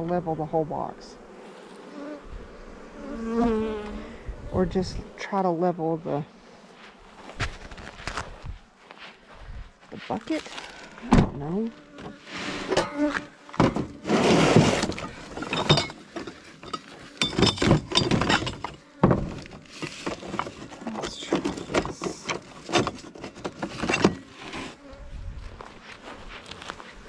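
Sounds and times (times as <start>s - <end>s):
gear clattering in truck bed: 13.6s - 24.6s.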